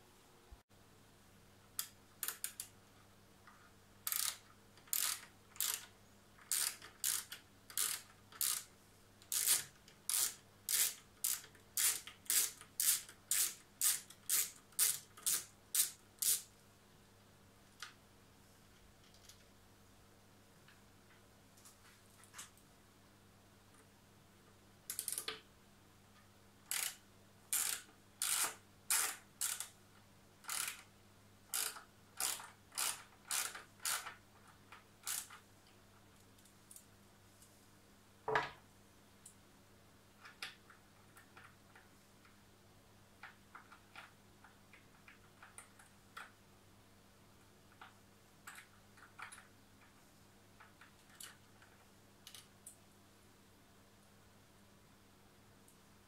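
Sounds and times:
ratchet wrench ratcheting: 4.1s - 5.9s, 6.5s - 8.7s, 9.3s - 16.4s, 26.7s - 29.7s, 30.5s - 30.8s, 31.5s - 34.1s, 35.0s - 35.4s
screws clicking: 4.1s - 16.5s, 24.9s - 25.4s, 26.7s - 29.8s, 30.4s - 30.9s, 31.5s - 34.2s, 35.0s - 35.4s.

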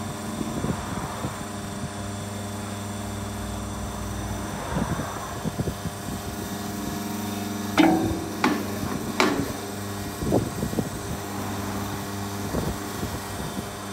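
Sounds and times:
hydraulic crusher humming: 6.1s - 13.9s
sharp metallic knocks: 7.7s - 10.2s
light knocks on steel tray: 7.8s - 9.7s.

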